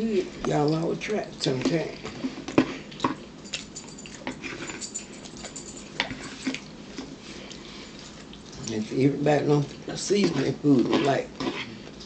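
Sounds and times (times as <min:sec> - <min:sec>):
chewing and mouth smacks: 0:02.5 - 0:08.8.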